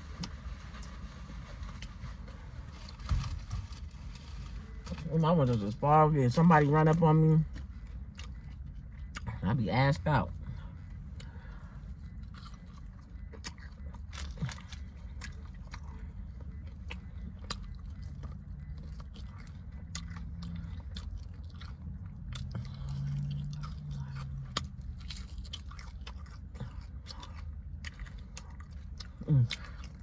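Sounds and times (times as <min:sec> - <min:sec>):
steady low rumble: 0:00.0 - 0:30.0
chewing and biting chicken wings: 0:11.9 - 0:30.0.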